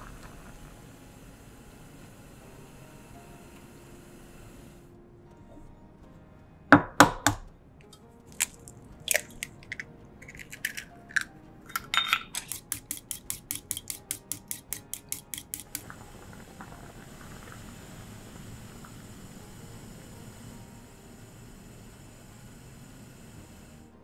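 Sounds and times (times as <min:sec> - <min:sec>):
soup bubbling: 0:00.0 - 0:02.1, 0:08.3 - 0:20.7
utensil beating egg in bowl: 0:00.0 - 0:04.8, 0:08.3 - 0:23.8
eggshell clicks: 0:07.8 - 0:16.1.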